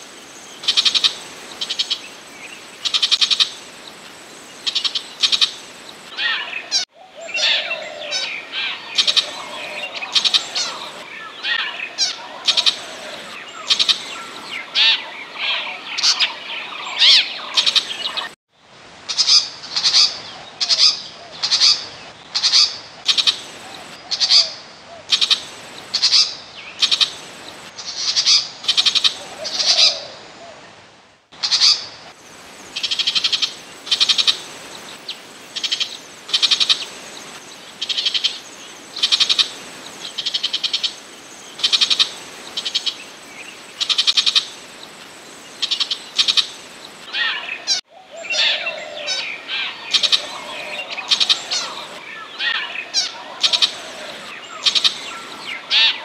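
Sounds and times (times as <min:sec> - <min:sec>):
bird harsh chattering song: 0:45.6 - 0:56.0.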